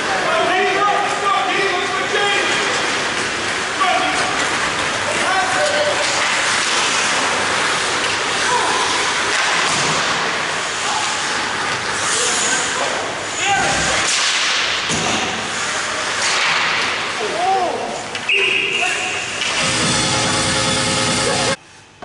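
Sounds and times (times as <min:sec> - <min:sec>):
hockey sticks hitting puck: 0:04.1 - 0:11.9, 0:13.6 - 0:17.1.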